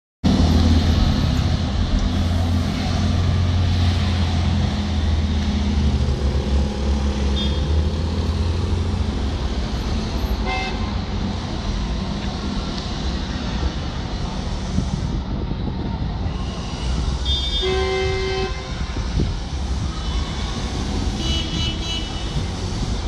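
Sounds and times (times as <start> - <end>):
bus engine passing: 0.2 - 17.2
street traffic: 0.2 - 23.0.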